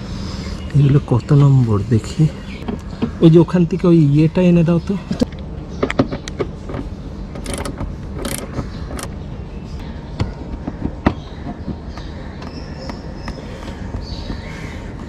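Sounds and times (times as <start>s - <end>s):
steady low hum: 0.0s - 15.0s
screwdriver turning plastic screws: 7.4s - 9.1s
socket wrench clicking: 7.4s - 9.1s.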